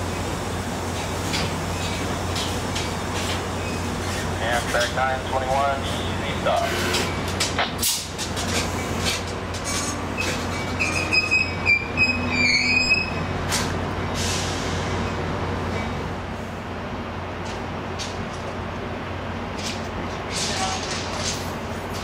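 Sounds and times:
railcar clanks: 0:00.0 - 0:16.2, 0:17.0 - 0:22.0
railcar wheels squealing: 0:09.6 - 0:13.4.

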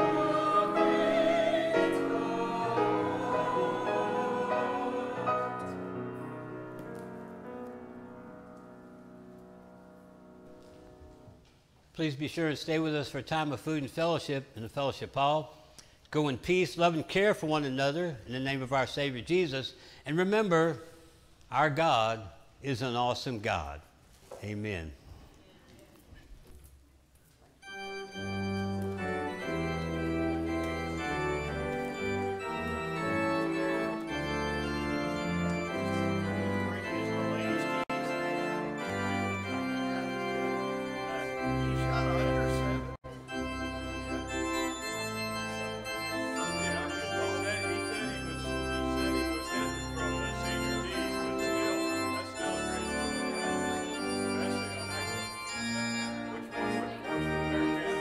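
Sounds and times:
church organ playing chords: 0:00.0 - 0:11.1, 0:27.6 - 0:58.0.

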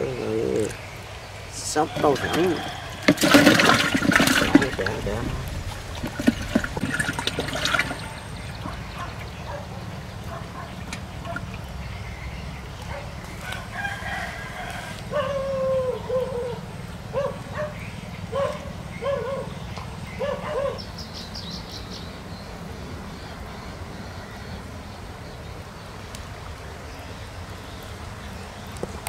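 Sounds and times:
chicken calling: 0:01.5 - 0:09.7, 0:12.9 - 0:19.6
low rumble: 0:04.2 - 0:09.0.

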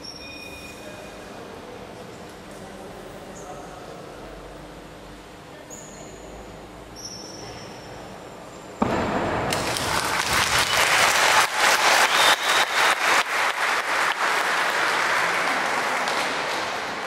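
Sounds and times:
audience applause: 0:09.5 - 0:17.0.

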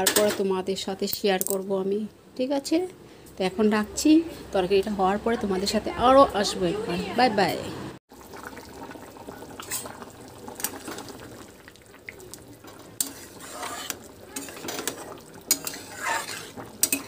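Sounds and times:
curry simmering: 0:08.0 - 0:17.0
metal spatula scraping a pan: 0:13.0 - 0:17.0.

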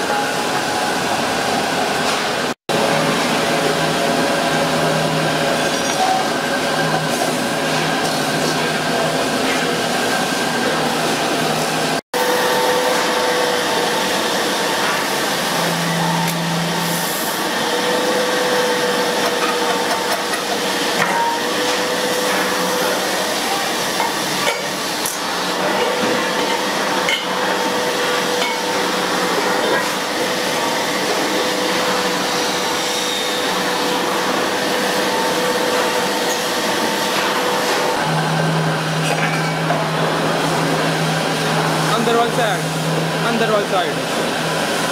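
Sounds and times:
lathe motor hum: 0:08.7 - 0:39.0.

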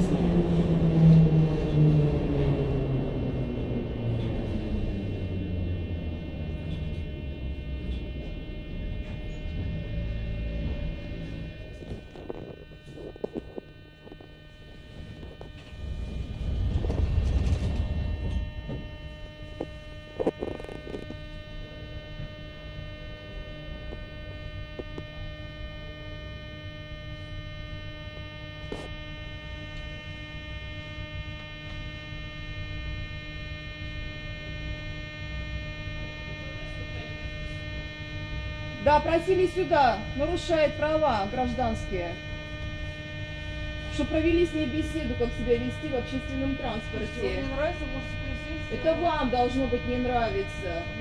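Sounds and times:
low rumble: 0:00.0 - 0:22.0
metro car electrical hum: 0:00.0 - 0:51.0.

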